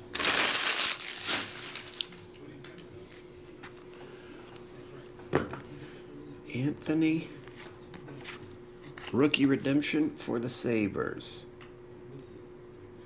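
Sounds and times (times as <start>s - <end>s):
foil wrapper crinkling and tearing: 0.0s - 2.2s.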